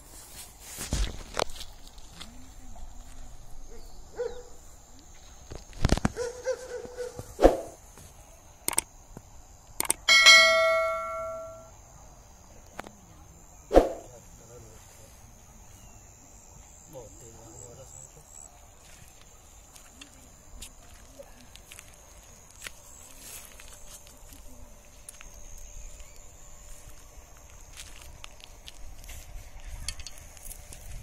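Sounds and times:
high insect drone: 0.0s - 31.0s
click: 8.7s - 8.9s, 9.8s - 10.0s
bell ding: 10.1s - 11.7s.

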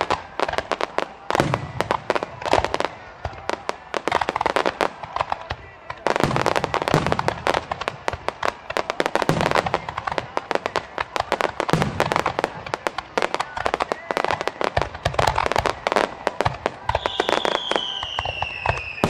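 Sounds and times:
deep fireworks boom: 0.0s - 19.0s
fireworks crackling: 0.0s - 19.0s.

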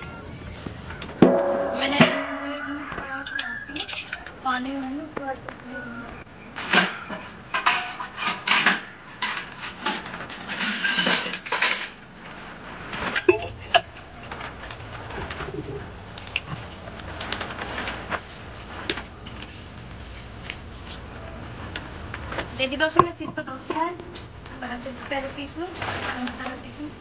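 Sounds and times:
steel plates clattering: 1.2s - 4.2s, 6.6s - 12.0s.

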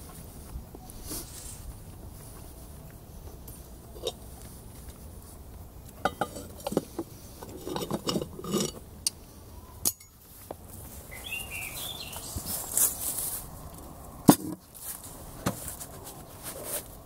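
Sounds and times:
metal lid clinking on pot: 6.0s - 6.8s, 7.6s - 8.8s.

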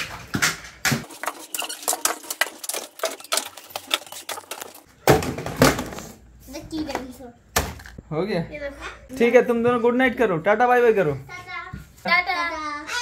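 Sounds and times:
plastic toys clattering: 1.0s - 6.1s.

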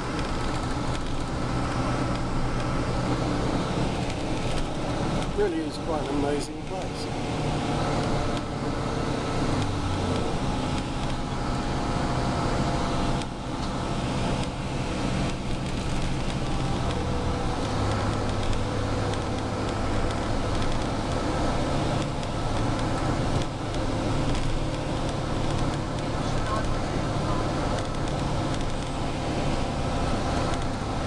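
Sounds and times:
bus engine hum: 0.0s - 31.0s
tyre and road noise: 0.0s - 31.0s.

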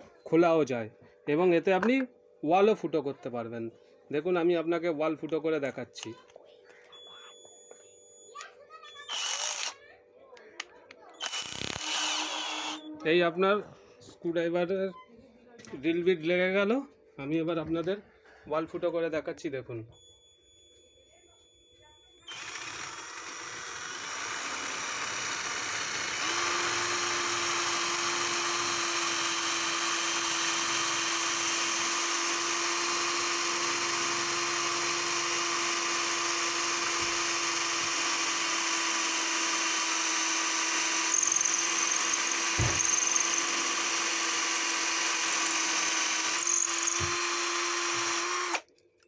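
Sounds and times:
cordless drill boring into brick: 9.1s - 9.8s, 11.2s - 12.9s, 22.3s - 48.7s.

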